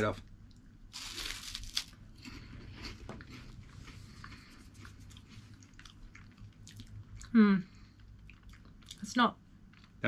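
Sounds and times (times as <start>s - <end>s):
crunchy snack being chewed: 0.9s - 7.3s.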